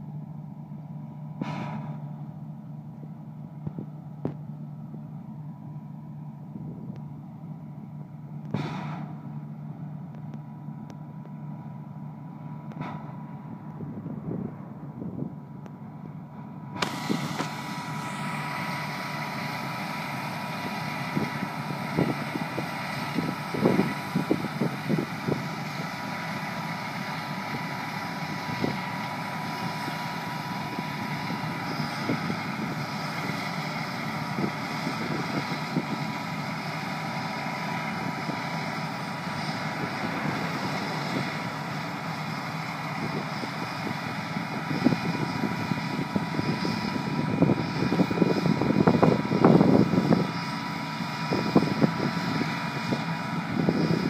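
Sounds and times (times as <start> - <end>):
combine harvester droning: 0.0 - 54.0
steady machine whine: 0.0 - 54.0
wind buffeting microphone: 13.7 - 15.5, 16.8 - 54.0.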